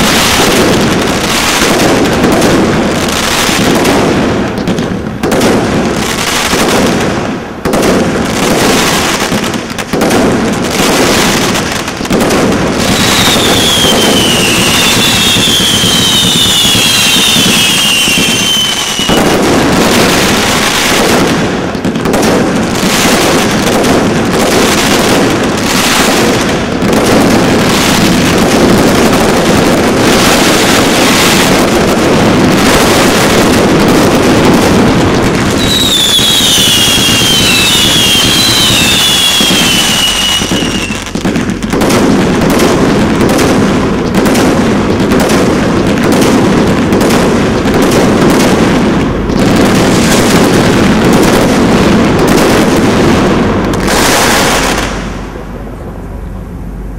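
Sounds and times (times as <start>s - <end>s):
firework shots and crackling: 0.0s - 55.8s
firework whistles: 10.7s - 21.3s, 22.8s - 31.8s, 35.2s - 42.6s.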